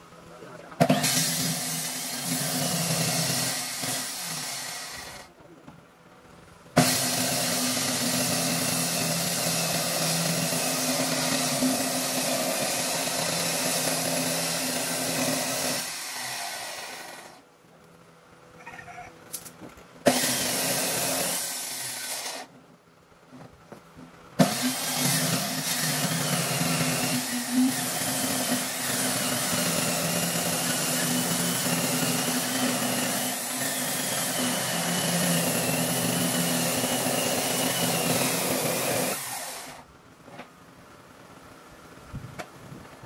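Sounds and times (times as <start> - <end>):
circular saw cutting wood: 0.8 - 5.3, 6.8 - 17.4, 20.0 - 22.5, 24.4 - 39.8.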